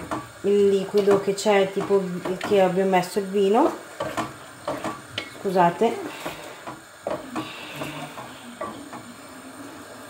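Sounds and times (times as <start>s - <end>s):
spoon clacking against pot: 0.0s - 2.8s, 3.7s - 5.5s
wooden spoon stirring sauce: 0.0s - 9.5s.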